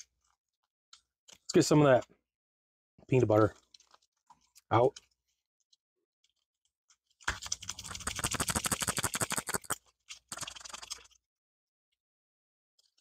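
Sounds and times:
plastic pouch tearing: 7.8s - 10.4s.

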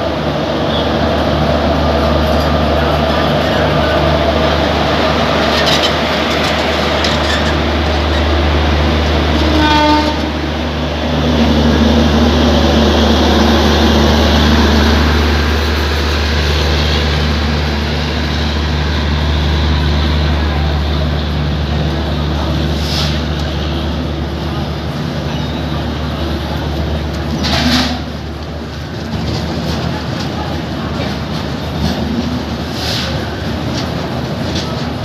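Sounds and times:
diesel generator hum: 0.0s - 35.0s
train coaches rolling past: 0.0s - 35.0s
train horn blast: 9.3s - 10.5s.

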